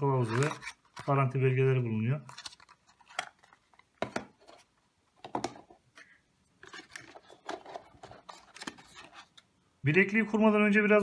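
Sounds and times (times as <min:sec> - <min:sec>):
cardboard and paper rustling: 0:00.1 - 0:01.4, 0:02.2 - 0:05.7, 0:06.6 - 0:09.4.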